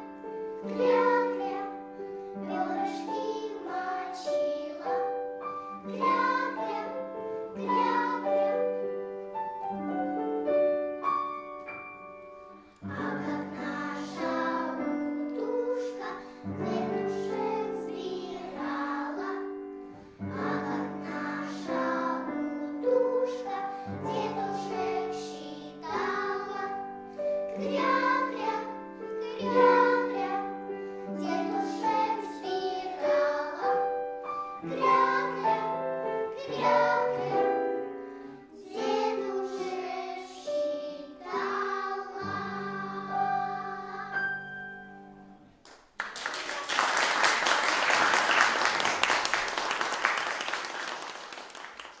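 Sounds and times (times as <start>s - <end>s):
children's choir singing: 0.0s - 9.4s, 12.8s - 45.3s
piano: 0.0s - 52.0s
audience applause: 45.7s - 52.0s.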